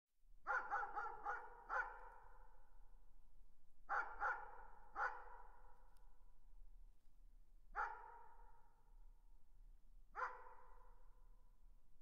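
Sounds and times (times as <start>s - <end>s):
distant dog barking with echo: 0.5s - 2.5s, 3.9s - 5.7s, 7.8s - 8.7s, 10.2s - 11.0s.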